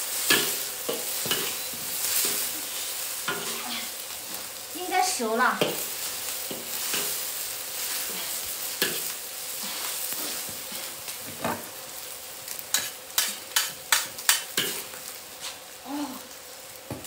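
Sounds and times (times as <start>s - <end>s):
food sizzling in a pan: 0.0s - 17.0s
spatula scraping and knocking pan: 0.2s - 2.5s, 3.2s - 3.8s, 5.6s - 7.2s, 7.9s - 11.7s, 12.7s - 14.9s.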